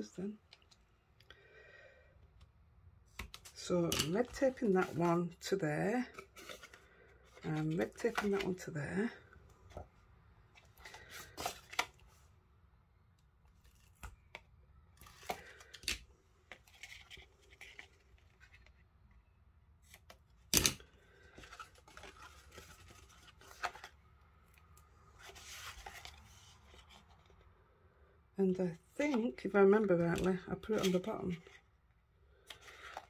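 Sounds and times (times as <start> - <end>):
paper rustling: 6.0 - 8.6, 21.1 - 24.0, 25.1 - 27.3.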